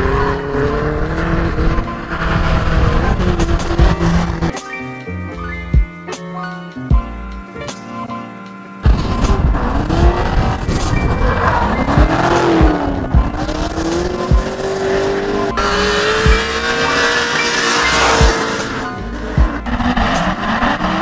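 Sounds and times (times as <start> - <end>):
car engine revving: 0.0 - 4.5, 8.8 - 21.0.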